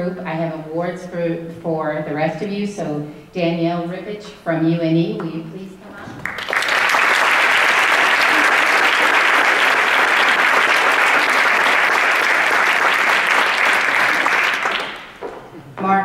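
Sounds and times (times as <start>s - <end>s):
audience applauding: 6.2s - 15.4s.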